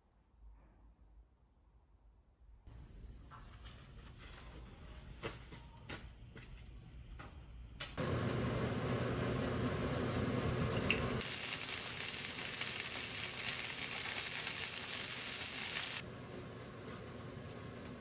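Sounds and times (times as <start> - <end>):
shrimp sizzling in oil: 11.2 - 16.0.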